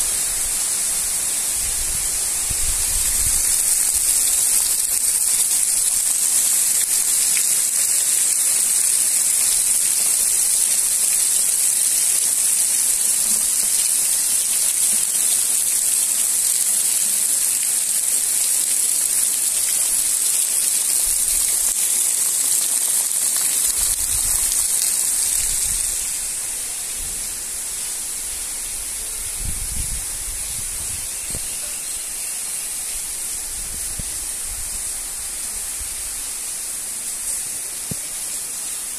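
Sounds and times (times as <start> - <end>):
heavy rain falling: 0.0 - 38.9.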